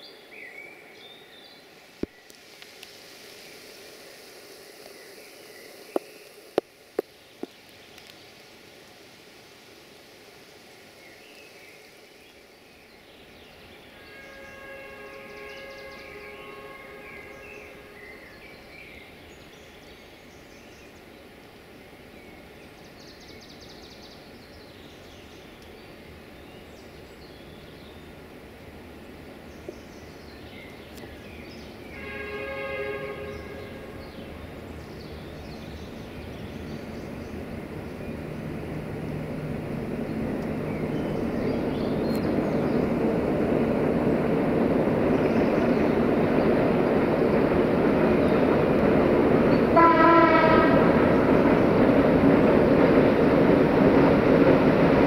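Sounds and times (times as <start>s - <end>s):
locomotive and train rumble: 0.1s - 55.0s
train air horn blasts: 14.0s - 18.1s, 31.9s - 34.0s, 49.7s - 51.2s.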